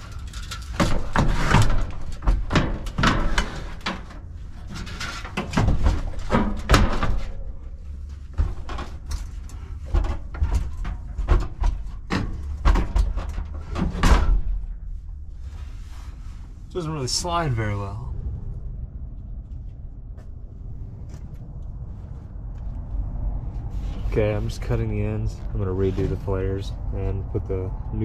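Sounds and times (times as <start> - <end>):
metal unit thumping and knocking: 0.0 - 14.8.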